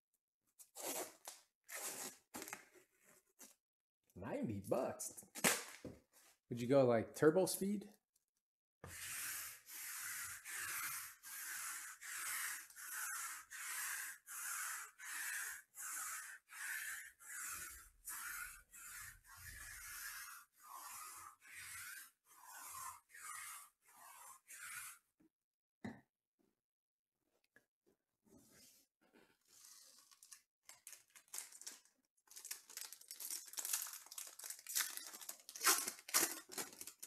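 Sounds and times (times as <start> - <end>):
lint roller rasping on cloth: 8.9 - 25.0.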